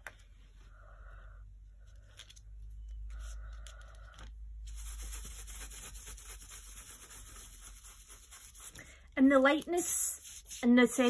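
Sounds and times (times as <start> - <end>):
paintbrush scrubbing on paper: 4.7 - 8.8, 9.8 - 11.0.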